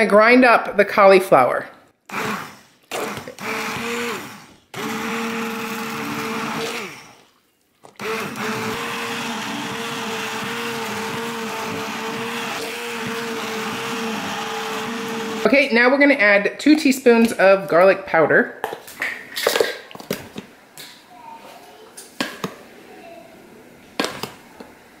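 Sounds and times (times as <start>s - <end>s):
immersion blender whirring: 2.1s - 7.2s, 8.0s - 15.6s.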